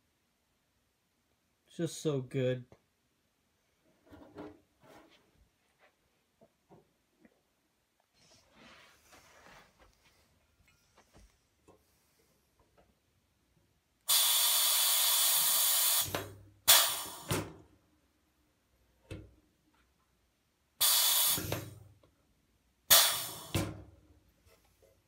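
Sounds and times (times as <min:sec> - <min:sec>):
rivet squeezer sharp bursts: 0:14.1 - 0:17.3, 0:20.8 - 0:21.7, 0:22.9 - 0:23.6
compressed air hissing: 0:14.1 - 0:17.4, 0:20.8 - 0:21.8, 0:22.9 - 0:23.7.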